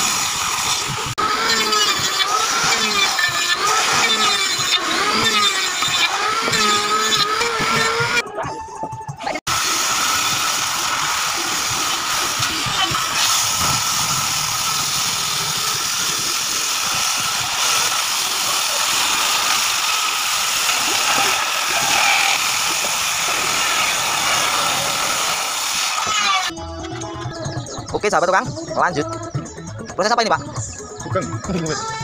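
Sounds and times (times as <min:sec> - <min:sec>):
table saw cutting log: 0:00.0 - 0:08.2, 0:09.5 - 0:26.5.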